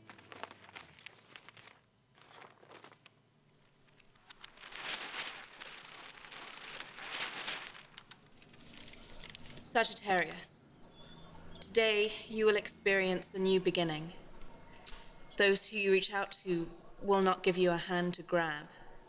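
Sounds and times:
newspaper pages rustling: 0:00.0 - 0:10.4.

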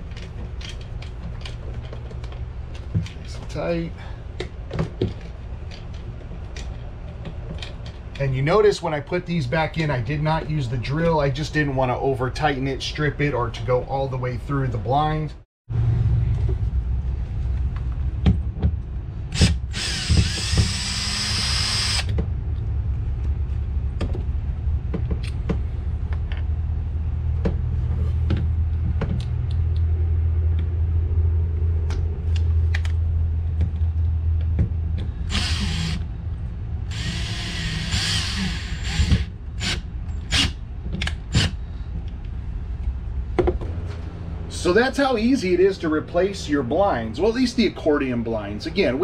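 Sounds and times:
low hum: 0:00.0 - 0:49.0
cordless power drill running: 0:19.4 - 0:22.1, 0:35.3 - 0:36.0, 0:36.9 - 0:40.5.

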